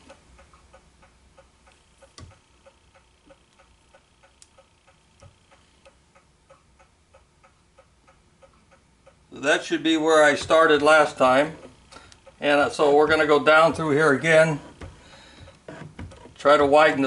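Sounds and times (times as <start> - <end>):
faint mechanical ticking: 0.0 - 17.0.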